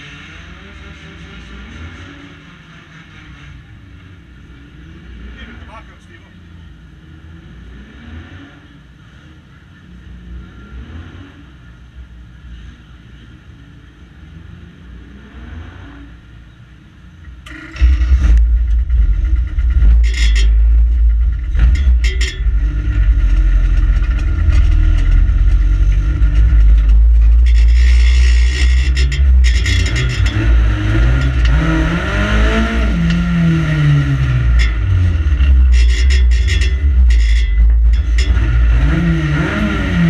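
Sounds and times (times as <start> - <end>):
car engine running and revving: 0.0 - 40.0
sharp rattles: 17.4 - 40.0.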